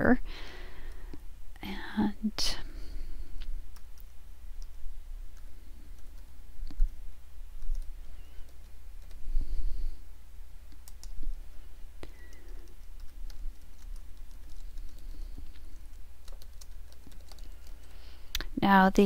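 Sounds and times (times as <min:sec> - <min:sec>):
low steady hum: 0:00.0 - 0:19.0
keyboard keys clicking: 0:16.2 - 0:17.9.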